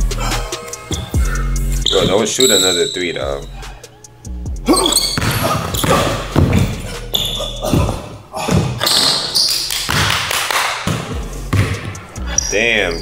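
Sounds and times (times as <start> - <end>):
basketball dribbling on court floor: 5.0 - 12.0.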